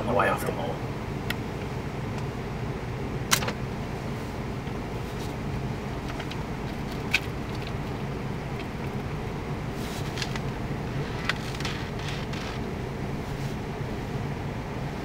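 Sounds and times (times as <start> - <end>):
car engine idling: 0.0 - 15.0
catapult bands snapping: 3.3 - 3.6
sharp click: 3.3 - 3.6.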